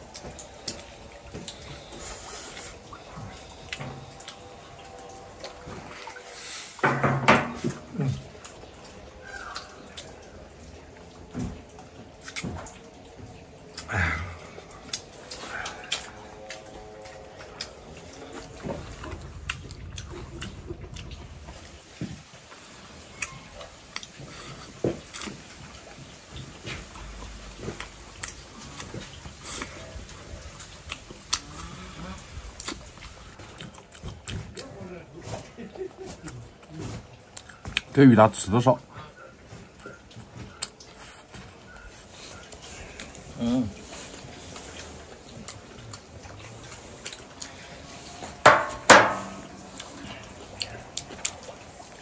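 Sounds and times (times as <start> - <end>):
person chewing: 0.0 - 6.6, 12.1 - 13.0, 13.6 - 21.6, 23.1 - 37.9, 39.6 - 52.0
sharp ringing knocks: 48.5 - 49.4.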